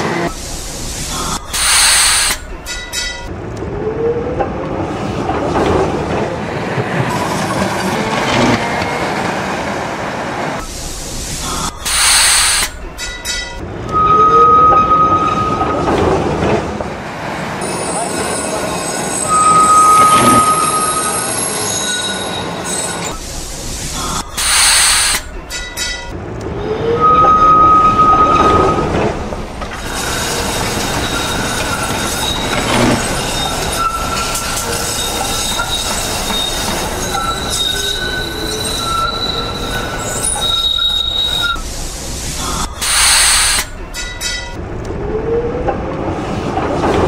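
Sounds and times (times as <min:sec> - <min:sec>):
tram wheels squealing: 0:00.0 - 0:03.3, 0:11.4 - 0:16.8, 0:17.6 - 0:44.6
tram rolling on rails: 0:00.0 - 0:47.0.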